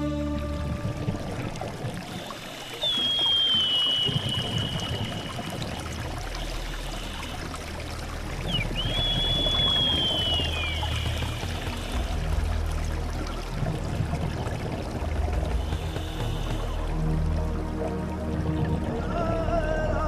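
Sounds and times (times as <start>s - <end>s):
low drone: 0.0s - 20.0s
watery rushing sound: 0.0s - 20.0s
high sliding whistle-like tones: 2.4s - 5.4s, 8.5s - 11.4s.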